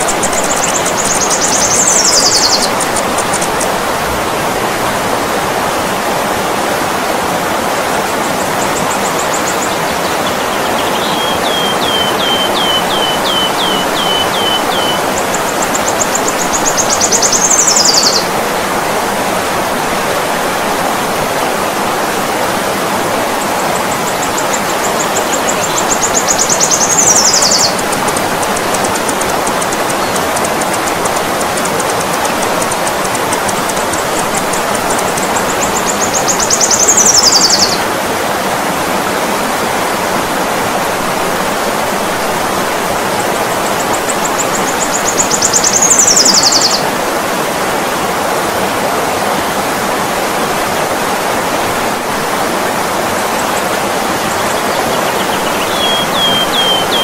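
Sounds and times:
high-pitched bird song: 0.0 - 3.7, 8.7 - 18.3, 24.2 - 37.8, 44.0 - 46.8, 54.2 - 57.0
river water flowing: 0.0 - 57.0.

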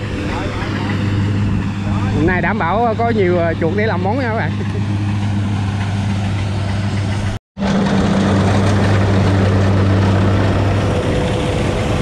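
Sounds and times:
combine harvester engine hum: 0.0 - 12.0
rush of threshing machinery: 4.6 - 12.0.

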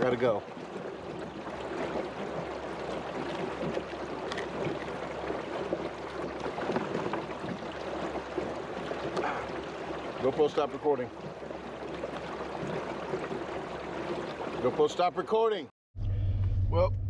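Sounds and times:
water lapping and trickling: 0.0 - 15.7
fishing line clicks: 4.2 - 4.6.

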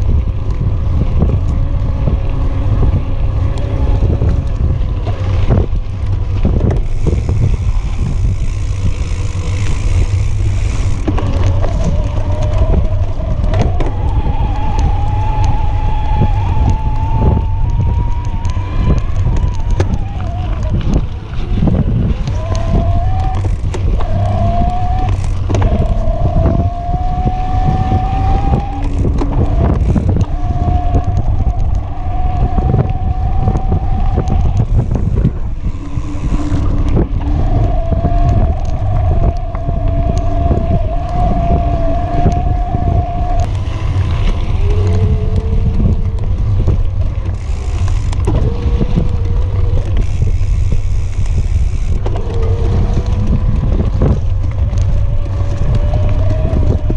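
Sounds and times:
electric bike motor whining: 0.0 - 56.9
tyres rumbling on dirt trail: 0.0 - 56.9
wind on microphone: 0.0 - 56.9
bike knocks and rattles: 4.2 - 15.1, 18.2 - 26.6.

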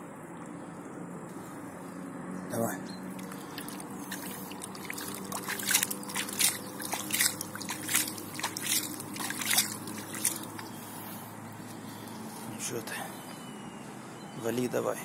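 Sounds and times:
shallow water splashing: 3.1 - 11.2.

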